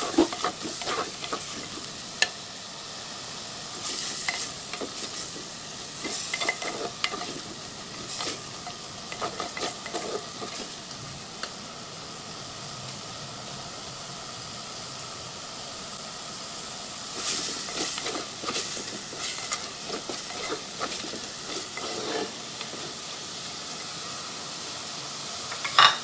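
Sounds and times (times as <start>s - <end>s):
wooden spatula scraping pot: 0.0s - 2.0s, 3.8s - 10.8s, 17.2s - 23.0s
food sizzling in oil: 0.0s - 26.0s.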